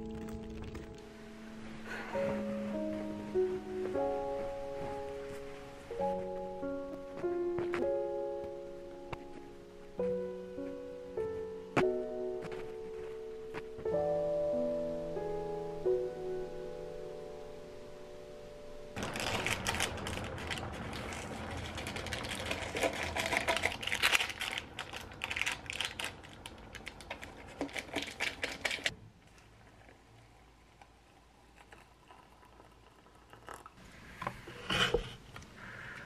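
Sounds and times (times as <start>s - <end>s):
plastic packaging crinkling and tearing: 0.0s - 1.1s, 19.0s - 28.9s.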